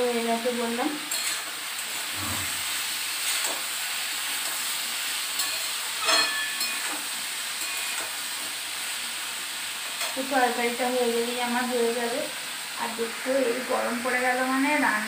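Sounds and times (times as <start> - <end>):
curry sizzling in a pan: 0.0 - 15.0.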